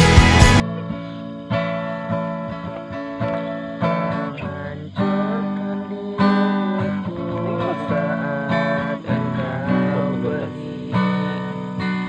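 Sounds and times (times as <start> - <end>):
acoustic guitar strumming: 0.0 - 12.0
man singing: 4.0 - 12.0.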